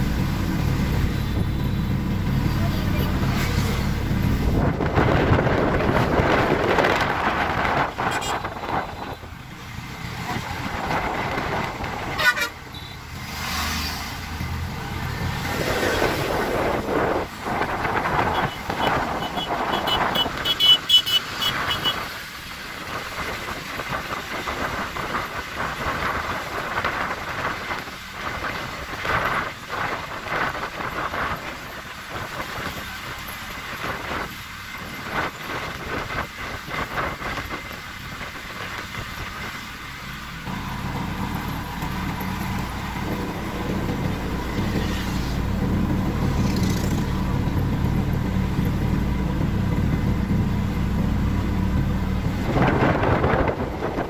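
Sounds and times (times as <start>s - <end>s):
low engine drone: 0.0s - 20.6s, 35.0s - 54.0s
trucks passing: 0.0s - 54.0s
wind and road noise: 0.0s - 54.0s.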